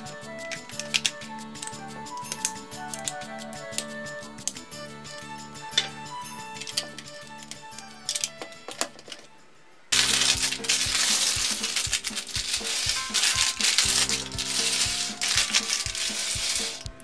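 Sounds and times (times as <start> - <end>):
background music: 0.0 - 17.0
plastic bricks clattering on wood: 6.6 - 9.3, 10.0 - 16.9
plastic bag crinkling: 9.9 - 17.0.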